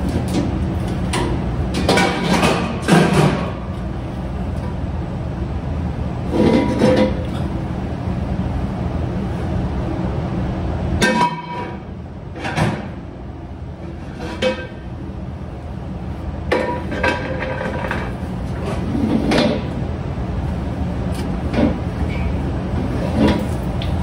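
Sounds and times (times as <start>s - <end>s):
steady low hum: 0.0s - 24.0s
metal pots and pans clanking: 11.0s - 11.8s.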